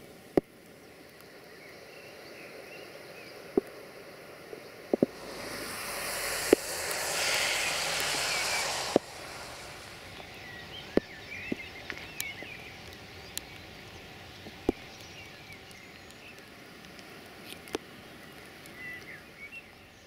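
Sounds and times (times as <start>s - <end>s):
rain hissing: 5.0s - 15.7s.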